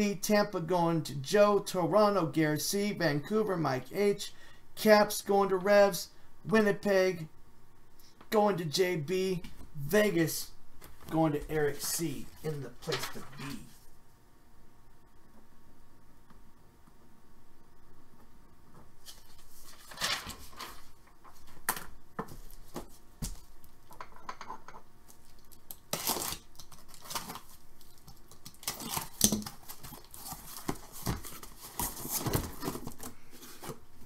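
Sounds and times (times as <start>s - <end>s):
cardboard and tape tearing: 25.9s - 33.8s
cardboard scraping and rustling: 28.7s - 33.8s.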